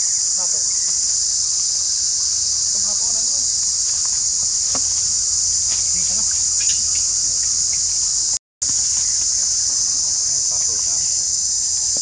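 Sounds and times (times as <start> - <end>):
insects droning: 0.0 - 12.0.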